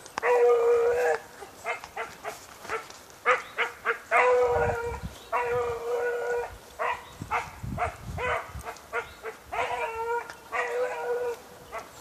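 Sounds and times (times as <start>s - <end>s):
hound baying: 0.2s - 12.0s.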